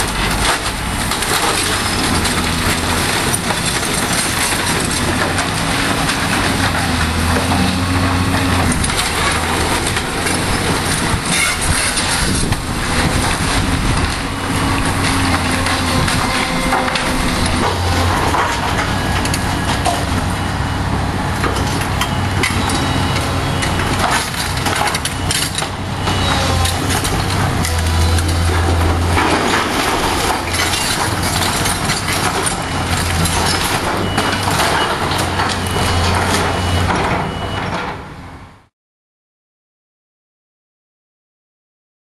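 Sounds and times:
excavator diesel engine running: 0.0 - 38.6
wooden walls cracking and crashing: 23.8 - 37.4.

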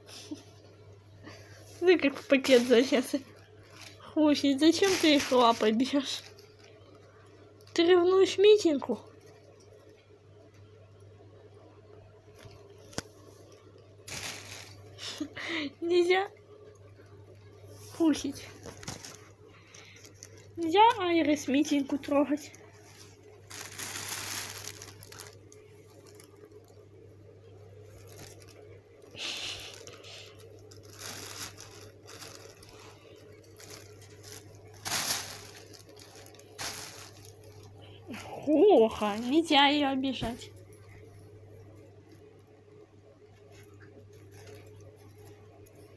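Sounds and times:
plastic bag crinkling: 1.7 - 10.0, 12.3 - 15.3, 18.0 - 26.8, 27.8 - 40.8, 43.5 - 45.9.

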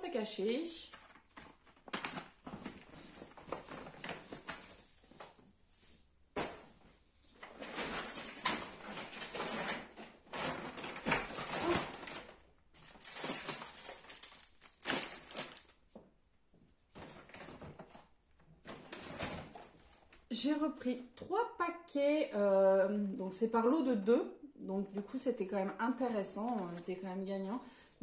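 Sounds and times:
plastic packaging rustling: 0.8 - 16.0, 16.9 - 20.3, 26.2 - 27.0.

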